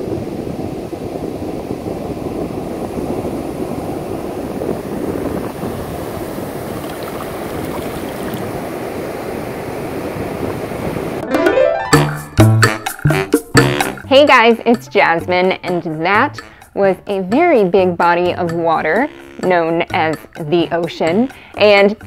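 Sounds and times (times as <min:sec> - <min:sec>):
ocean waves washing up beach: 0:00.0 - 0:11.7.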